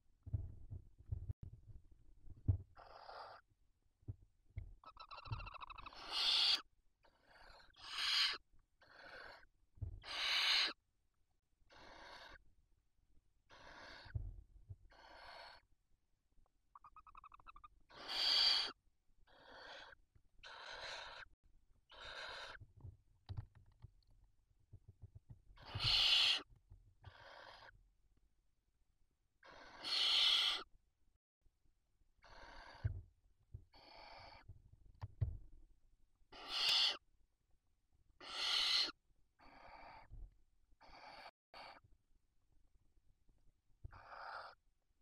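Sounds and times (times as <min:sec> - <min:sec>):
owl chirp: 0:02.8 - 0:03.5, 0:04.8 - 0:10.8, 0:11.7 - 0:12.4, 0:13.5 - 0:14.2, 0:14.9 - 0:15.7, 0:16.7 - 0:21.3, 0:21.9 - 0:22.6, 0:25.6 - 0:26.5, 0:27.1 - 0:27.8, 0:29.4 - 0:30.7, 0:32.2 - 0:32.9, 0:33.7 - 0:34.5, 0:36.3 - 0:37.0, 0:38.2 - 0:40.1, 0:40.8 - 0:41.8, 0:43.8 - 0:44.6
owls hissing calls: 0:04.9 - 0:06.7, 0:07.3 - 0:10.8, 0:11.7 - 0:12.4, 0:13.5 - 0:14.1, 0:14.9 - 0:15.6, 0:16.8 - 0:21.3, 0:21.9 - 0:22.6, 0:25.6 - 0:26.5, 0:27.1 - 0:27.7, 0:29.4 - 0:30.7, 0:33.7 - 0:34.4, 0:36.3 - 0:37.0, 0:38.2 - 0:40.1, 0:40.8 - 0:41.8, 0:43.9 - 0:44.6.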